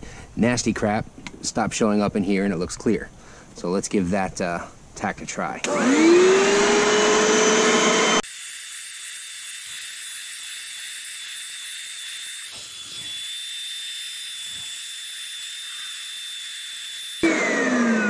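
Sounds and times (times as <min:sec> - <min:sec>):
carpet cleaner suction motor: 0:05.6 - 0:08.4, 0:09.2 - 0:18.0.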